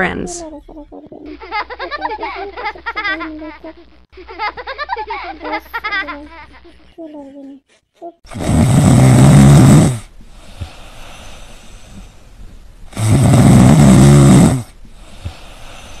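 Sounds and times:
loud drawn-out snores: 0:08.3 - 0:12.2, 0:12.9 - 0:16.0.

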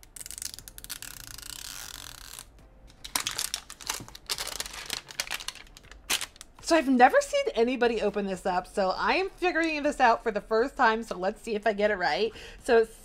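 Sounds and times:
plastic film crinkling: 0:00.0 - 0:06.6
plastic film peeling: 0:00.0 - 0:06.6.

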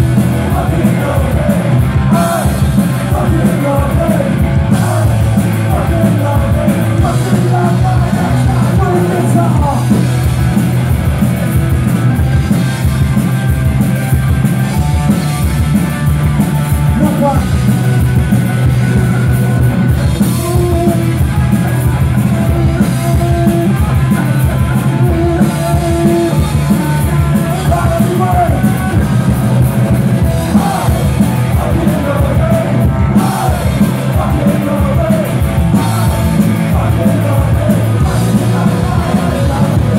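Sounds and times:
bass guitar: 0:00.0 - 0:39.9
drums: 0:00.0 - 0:39.9
electric guitars: 0:00.0 - 0:39.9
person singing and shouting: 0:00.4 - 0:10.0, 0:20.2 - 0:29.5, 0:30.3 - 0:39.9.

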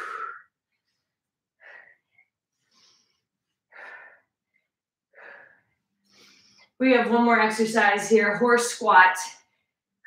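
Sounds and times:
woman breathing hard: 0:00.0 - 0:01.0, 0:01.6 - 0:06.8.

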